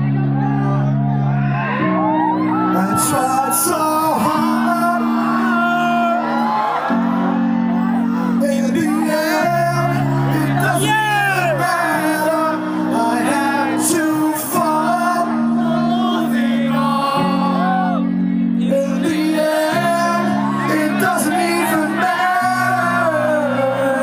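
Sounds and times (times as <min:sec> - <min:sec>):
low bass notes: 0:00.0 - 0:06.4, 0:07.0 - 0:24.0
electric guitars: 0:00.0 - 0:24.0
man singing: 0:02.7 - 0:06.6, 0:08.1 - 0:24.0.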